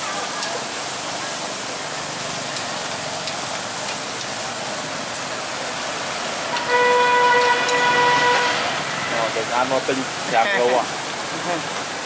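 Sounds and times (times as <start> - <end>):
meat sizzling on grill: 0.0 - 12.0
vehicle horn: 6.5 - 9.3.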